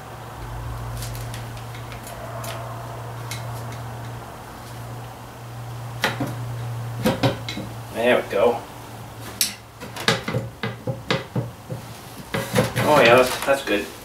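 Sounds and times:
steady low hum: 0:00.0 - 0:09.8.

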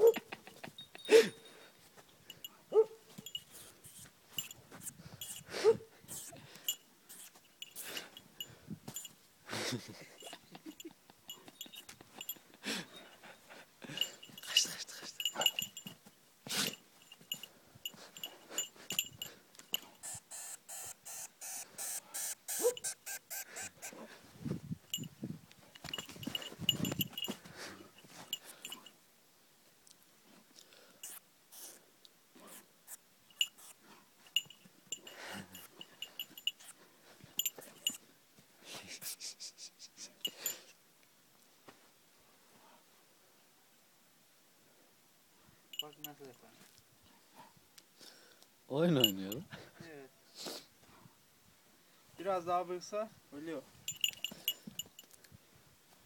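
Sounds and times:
dog sniffing and snuffling: 0:01.6 - 0:10.4, 0:11.3 - 0:24.3, 0:25.8 - 0:28.9, 0:30.7 - 0:38.0.

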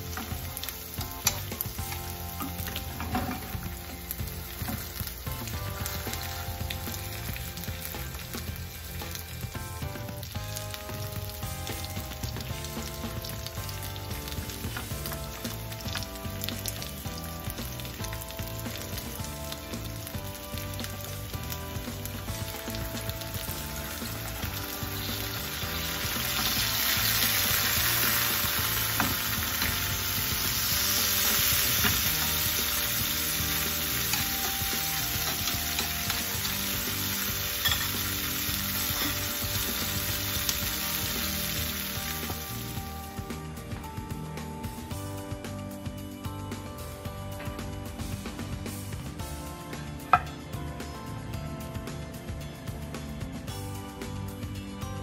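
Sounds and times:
meat and onions sizzling in a pan: 0:00.0 - 0:43.7.

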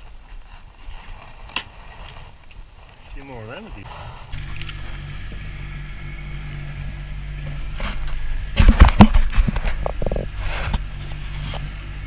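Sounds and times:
low engine hum: 0:03.7 - 0:12.0
fish knocking and clattering: 0:08.5 - 0:10.4.

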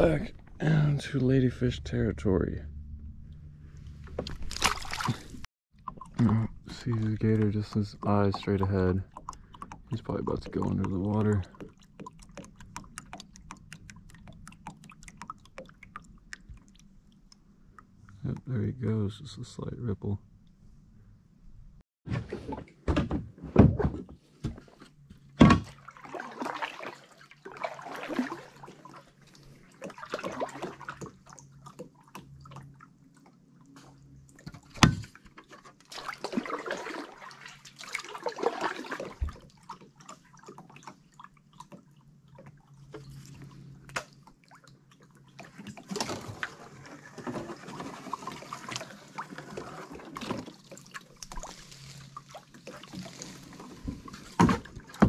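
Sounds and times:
paddle swishing and splashing water: 0:04.1 - 0:16.8, 0:25.4 - 0:55.0.

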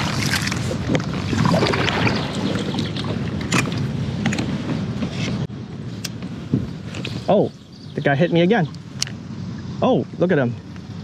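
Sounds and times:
kayak paddle splashing: 0:00.0 - 0:04.0
water running off paddle: 0:00.0 - 0:04.0.

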